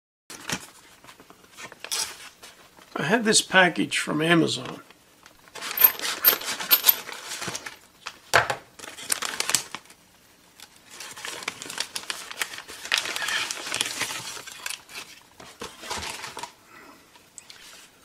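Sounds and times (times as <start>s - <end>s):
paper crinkling and rustling: 0.3s - 2.9s, 5.5s - 8.2s, 8.8s - 10.0s, 10.6s - 16.6s.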